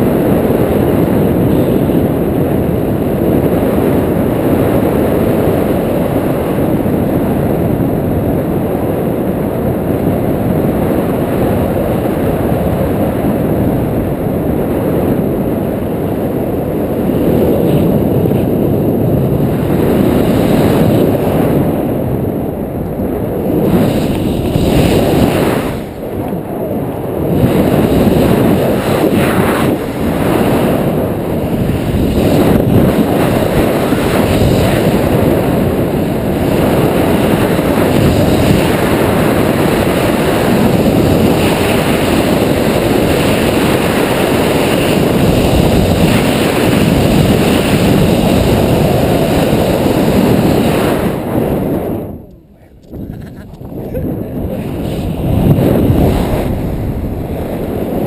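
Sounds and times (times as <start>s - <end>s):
wind buffeting microphone: 0.0s - 58.0s.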